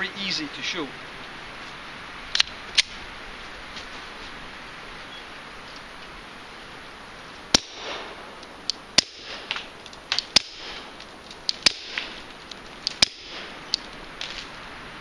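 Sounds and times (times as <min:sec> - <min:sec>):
suppressed pistol shots: 0:07.5 - 0:08.3, 0:09.0 - 0:10.9, 0:11.5 - 0:12.2, 0:12.9 - 0:13.6.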